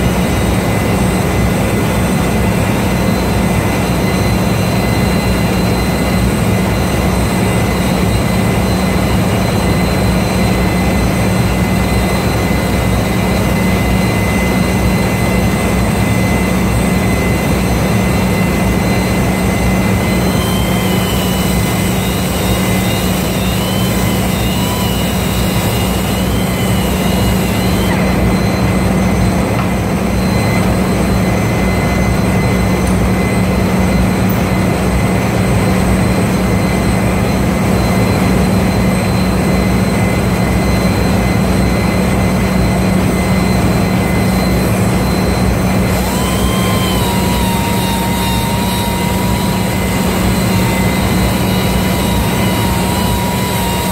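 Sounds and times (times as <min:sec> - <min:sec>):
thin wavering whine: 0:00.0 - 0:53.9
power grinder running: 0:17.6 - 0:31.2, 0:43.8 - 0:53.9.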